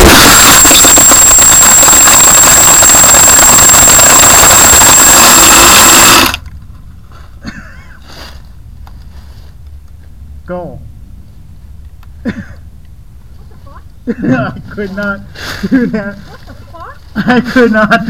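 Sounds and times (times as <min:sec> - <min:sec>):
drone motors whining: 0:00.0 - 0:06.5.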